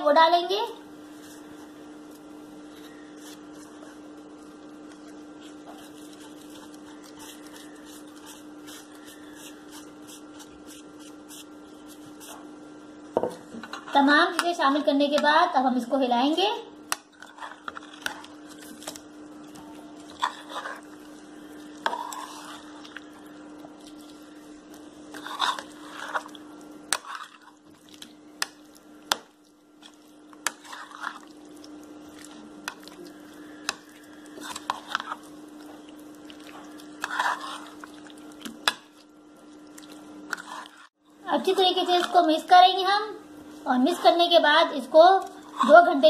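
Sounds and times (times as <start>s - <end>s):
steady low hum: 0.0s - 46.0s
spoon squelching in marinade: 1.2s - 12.5s, 17.0s - 41.0s.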